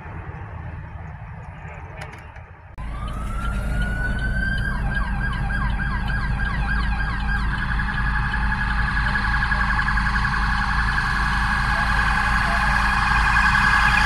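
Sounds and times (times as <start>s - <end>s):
steady low rumble: 0.0s - 14.0s
emergency sirens wailing and yelping: 2.8s - 14.0s.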